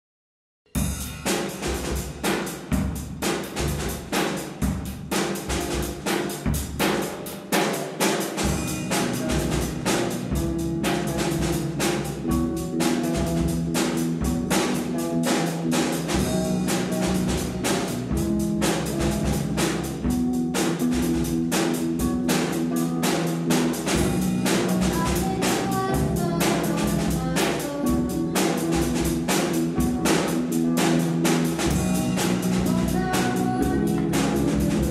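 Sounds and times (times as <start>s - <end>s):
drum kit beat: 0.7s - 34.9s
electric bass: 0.8s - 7.4s, 8.4s - 34.9s
electric guitar riff: 8.4s - 34.9s.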